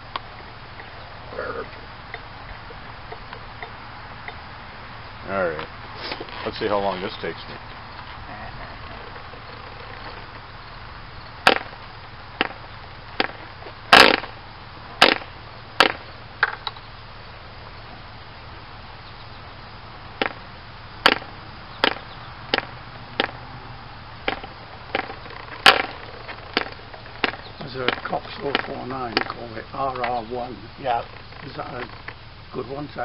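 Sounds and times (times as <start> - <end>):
engine pop: 8.8 - 16.9, 20.1 - 23.5, 24.2 - 33.0.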